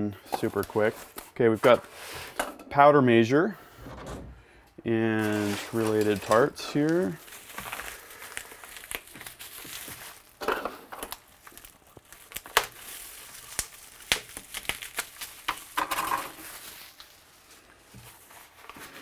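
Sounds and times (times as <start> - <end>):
plastic wrap crinkling: 0.4 - 2.0, 5.1 - 19.0.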